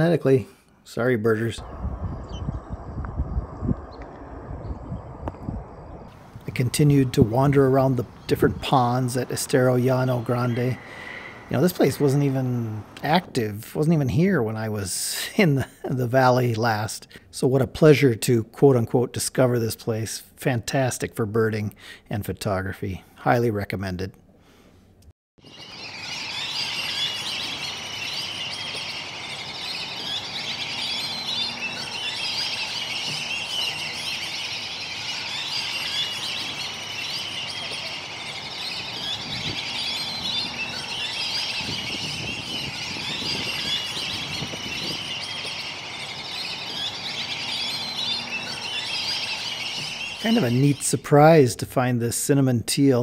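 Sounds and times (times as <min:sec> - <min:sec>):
many birds chirping: 0:05.9 - 0:14.8, 0:25.4 - 0:51.6.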